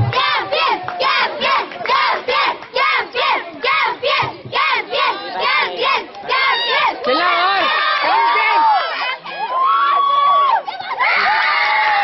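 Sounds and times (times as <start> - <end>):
children chanting a cheer: 0.0 - 9.6.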